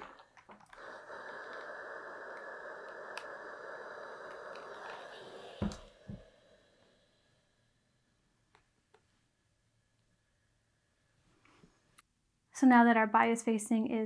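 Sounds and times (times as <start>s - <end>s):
steam iron hissing: 0.0s - 7.7s.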